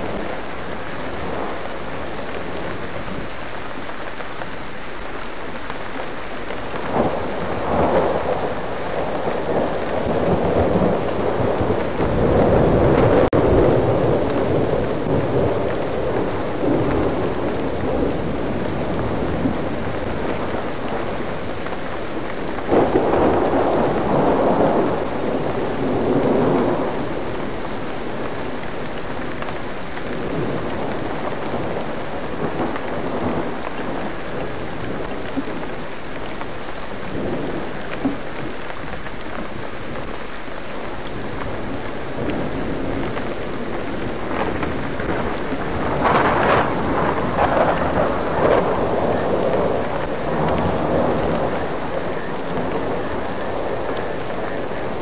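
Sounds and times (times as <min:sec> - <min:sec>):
steady rain falling: 0:00.0 - 0:55.0
rolling thunder: 0:06.8 - 0:28.5, 0:41.2 - 0:55.0.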